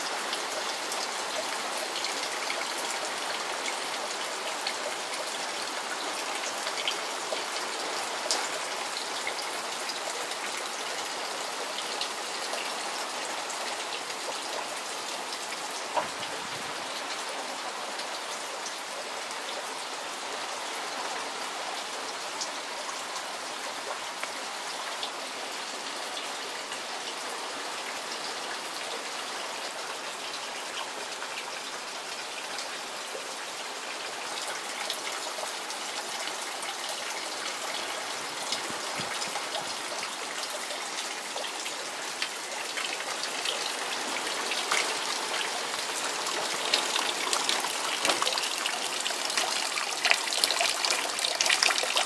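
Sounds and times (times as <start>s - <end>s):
steady rain: 0.0s - 52.0s
gutter water splashing on plants: 44.2s - 52.0s.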